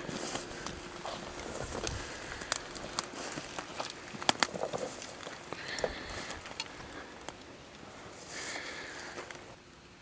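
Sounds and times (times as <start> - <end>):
footsteps through dry weeds: 0.0 - 7.0
twigs snapping underfoot: 0.0 - 7.8.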